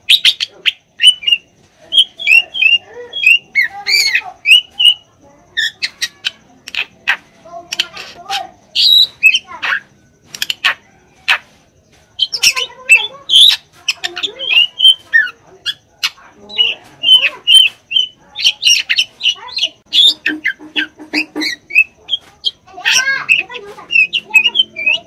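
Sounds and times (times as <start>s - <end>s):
bird song of clicks and whistles: 0.0s - 11.6s, 12.2s - 25.0s.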